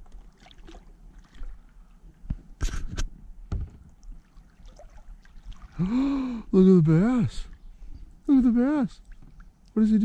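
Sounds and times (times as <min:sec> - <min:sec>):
short splashes: 0:00.0 - 0:01.7, 0:03.9 - 0:06.0
water lapping against kayak hull: 0:00.0 - 0:06.5.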